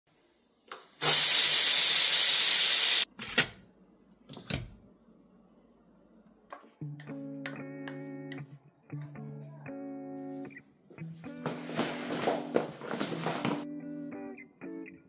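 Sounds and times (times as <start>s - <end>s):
pressure cooker steam hiss: 0.1s - 3.1s.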